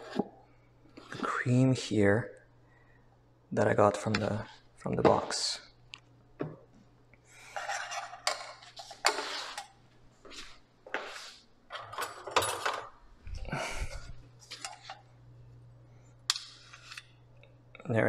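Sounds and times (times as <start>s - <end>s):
metal spoons scraping a saucepan: 16.3s - 17.2s.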